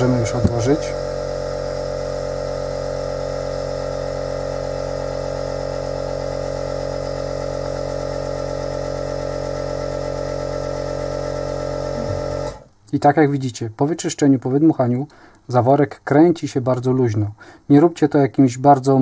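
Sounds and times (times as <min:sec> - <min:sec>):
electric machine humming: 0:00.0 - 0:12.7.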